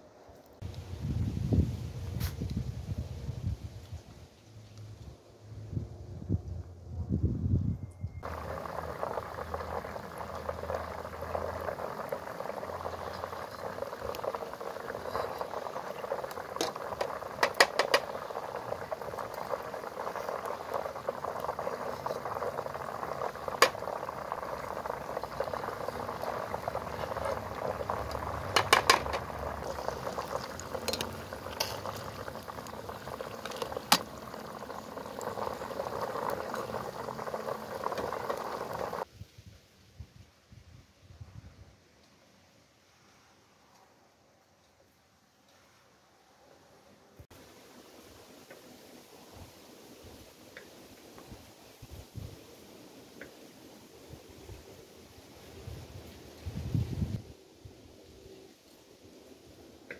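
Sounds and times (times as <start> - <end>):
oil sizzling and bubbling: 8.2 - 39.1.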